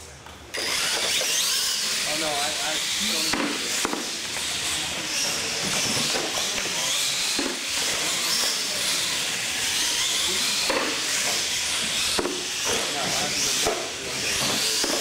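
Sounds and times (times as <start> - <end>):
toy truck motor whine: 0.5 - 15.0
tyres hissing on concrete: 1.5 - 15.0.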